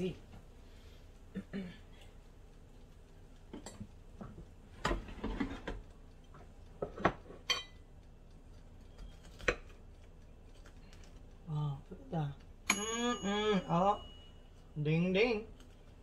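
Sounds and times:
knife and fork on a plate: 4.9s - 5.8s, 8.9s - 9.8s
metal clink on a plate: 7.4s - 7.8s, 12.7s - 14.2s.

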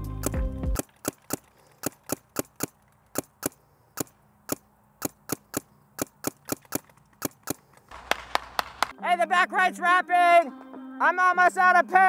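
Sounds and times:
paintball marker firing: 0.2s - 8.9s.

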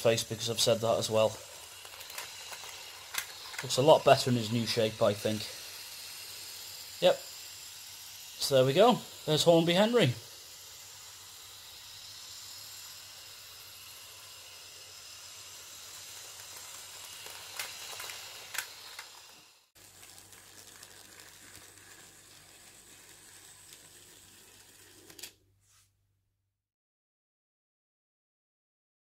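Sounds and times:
model train hissing on track: 0.0s - 25.2s
model engine humming: 0.0s - 25.4s.

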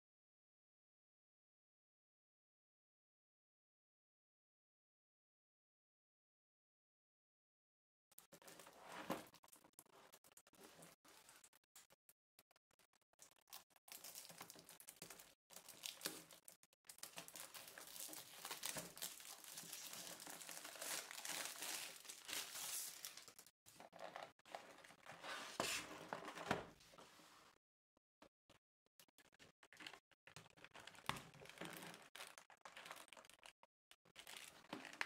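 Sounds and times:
plastic shrink wrap tearing: 13.4s - 24.2s.

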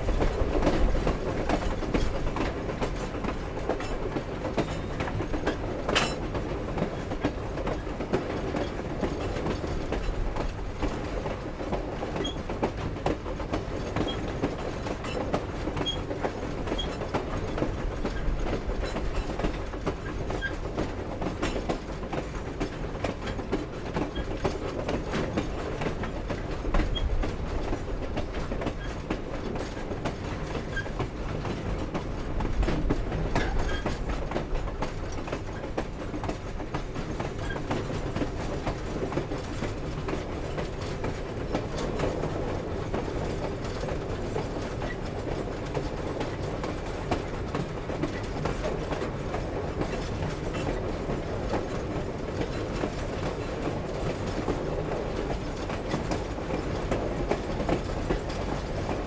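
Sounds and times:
train cars clanking: 0.0s - 59.0s
train wheels rumbling on rails: 0.0s - 59.0s.

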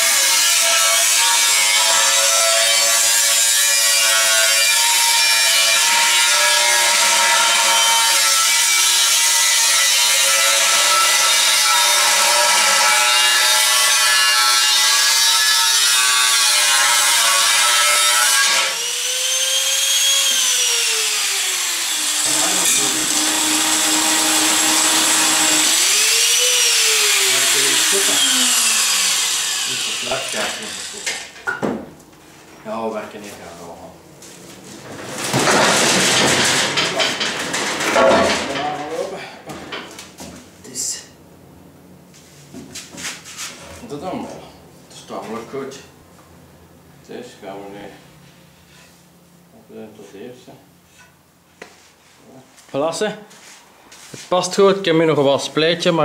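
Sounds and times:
angle grinder cutting steel: 0.0s - 31.4s
grinder motor winding down: 18.8s - 31.1s.

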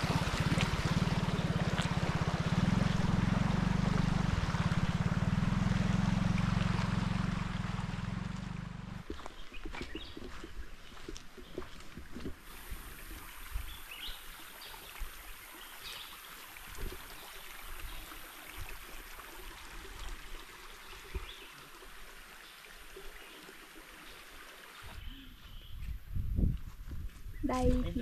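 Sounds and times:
water trickling hiss: 12.4s - 25.7s.

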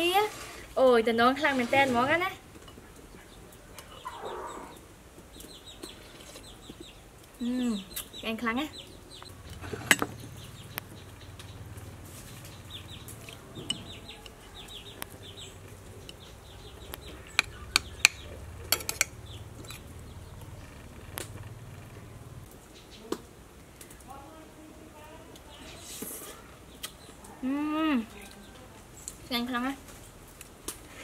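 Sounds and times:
chickens clucking: 2.6s - 7.0s, 7.8s - 23.2s.

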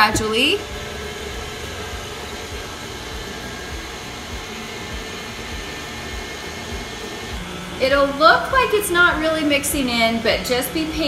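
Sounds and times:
stand mixer motor hum: 0.0s - 11.0s.

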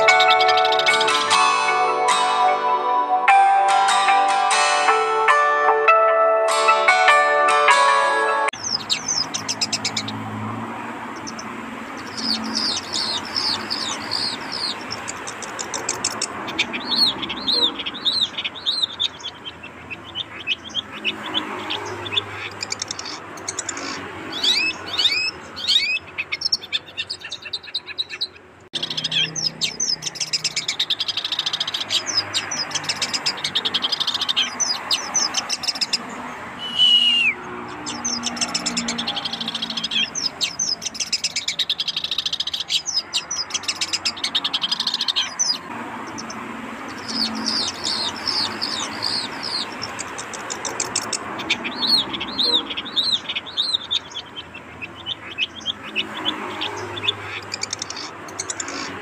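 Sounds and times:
bird twittering song: 0.0s - 1.5s, 8.5s - 59.0s
bird falling whistle: 36.6s - 37.4s.

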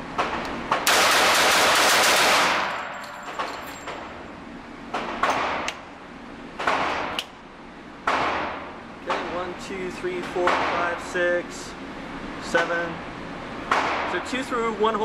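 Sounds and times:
rapid pistol shots indoors: 0.2s - 4.2s, 4.9s - 5.8s, 6.6s - 7.2s, 8.0s - 8.7s.

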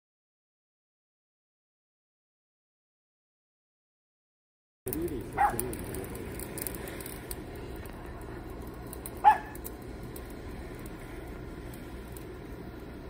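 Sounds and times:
torch flame rushing: 4.9s - 13.0s
dog barks: 5.3s - 5.7s, 9.2s - 9.6s.

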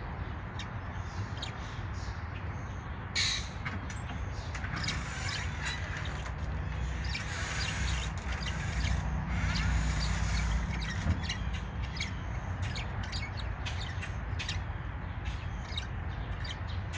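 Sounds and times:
birds chirping: 0.0s - 16.9s.

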